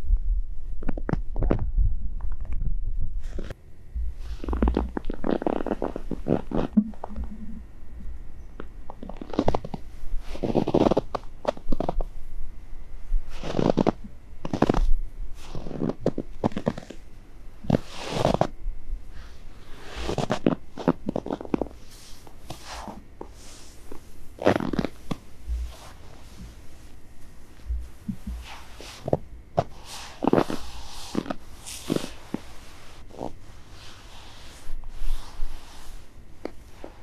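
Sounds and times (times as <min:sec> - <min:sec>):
footsteps crunching in snow: 0:13.3 - 0:17.0, 0:19.7 - 0:37.0.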